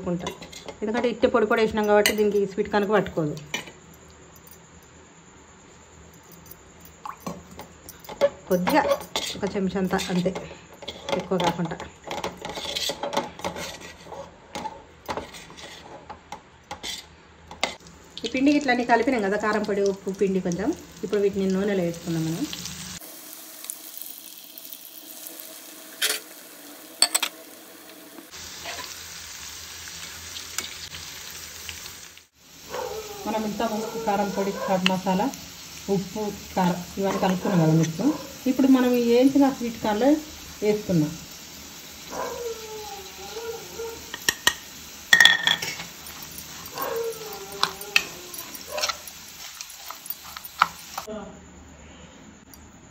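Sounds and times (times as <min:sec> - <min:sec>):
spoon clinking against bowl: 0:01.8 - 0:02.5, 0:27.0 - 0:27.3, 0:44.1 - 0:50.8
corn deep-frying in hot oil: 0:07.0 - 0:51.2
spoon stirring food in bowl: 0:45.2 - 0:51.1.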